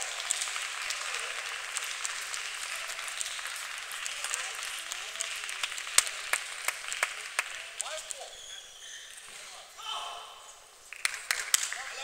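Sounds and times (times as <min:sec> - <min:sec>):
audience applauding: 0:00.0 - 0:08.2, 0:10.9 - 0:12.0.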